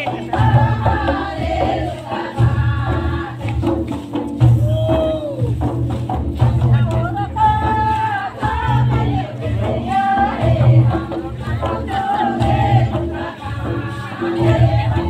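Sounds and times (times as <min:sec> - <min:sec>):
voices singing together: 0:00.0 - 0:06.0, 0:06.7 - 0:15.0
low drum beat: 0:00.0 - 0:15.0.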